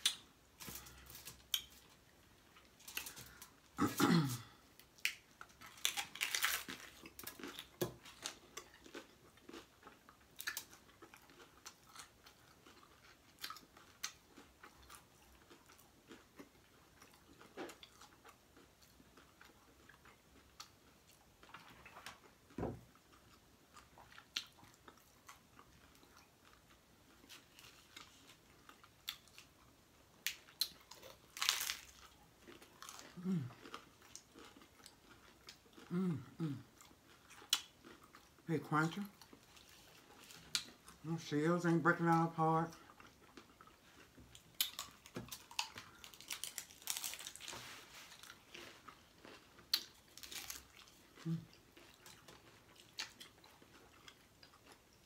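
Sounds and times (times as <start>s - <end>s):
crunching taco shells: 0.0s - 41.3s, 41.9s - 55.0s
person humming: 33.2s - 33.5s, 35.9s - 36.7s.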